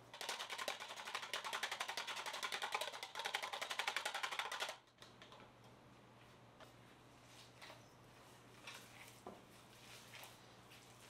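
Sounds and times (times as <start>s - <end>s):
whisk beating egg in bowl: 0.0s - 4.8s.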